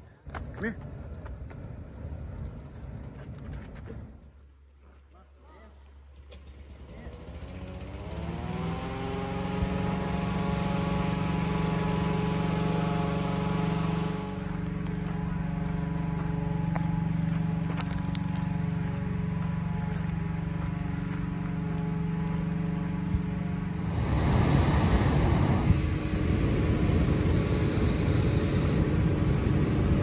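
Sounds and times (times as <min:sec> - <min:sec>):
engine revving: 0:06.3 - 0:16.3, 0:22.2 - 0:30.0.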